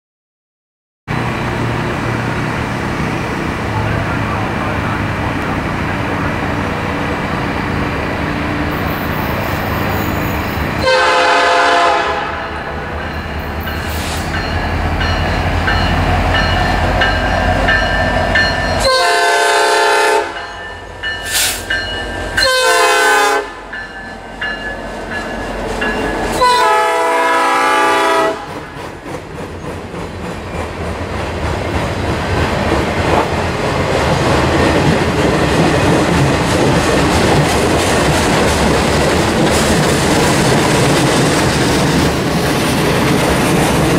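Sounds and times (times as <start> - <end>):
diesel engine rumble: 1.1 - 8.8
locomotive air horn blasts: 10.8 - 12.8, 18.8 - 20.4, 22.4 - 23.6, 26.3 - 28.5
train wheels clickety-clack: 28.0 - 43.9.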